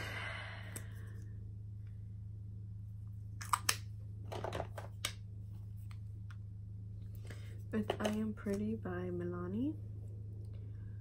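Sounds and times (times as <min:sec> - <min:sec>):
steady low hum: 0:00.0 - 0:11.0
makeup products clicking and tapping: 0:07.8 - 0:08.7.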